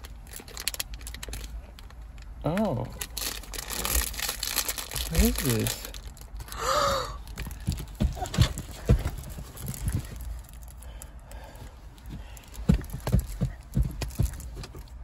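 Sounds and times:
plastic bag rustling: 0.0 - 1.7, 3.0 - 6.4.

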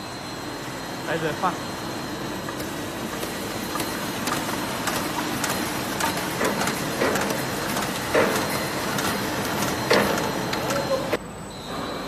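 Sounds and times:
grooving machine running: 0.0 - 11.2
sharp clicks and knocks: 2.4 - 11.0.

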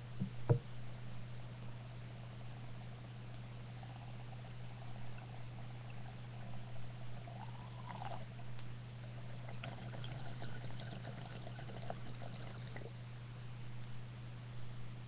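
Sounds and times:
low electrical hum: 0.0 - 15.0
water bubbling through a bong: 2.6 - 8.5, 9.1 - 12.9.

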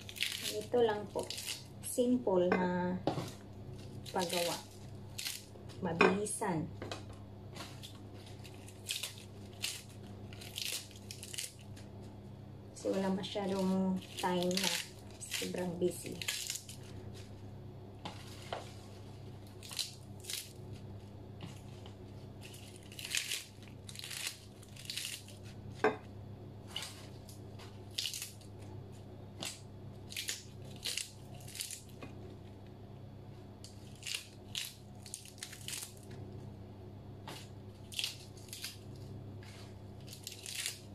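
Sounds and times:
lettuce leaves tearing: 0.0 - 1.9, 3.2 - 5.5, 7.6 - 11.8, 12.9 - 17.3, 19.4 - 20.6, 21.4 - 25.6, 26.7 - 28.5, 29.4 - 32.0, 33.6 - 36.1, 37.3 - 40.9
low steady hum: 0.0 - 40.9.

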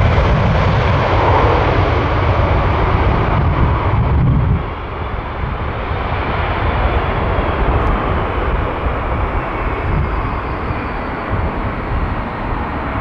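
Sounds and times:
high jet engine whine: 0.0 - 13.0
jet airliner taking off: 0.0 - 13.0.

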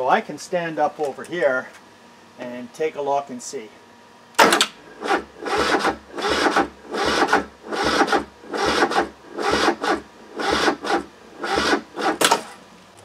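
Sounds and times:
diesel engine cranking slowly: 4.4 - 13.0.

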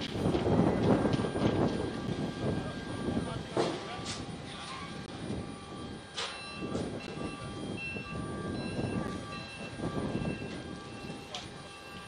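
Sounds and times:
machinery rumble and clatter: 0.0 - 12.0.

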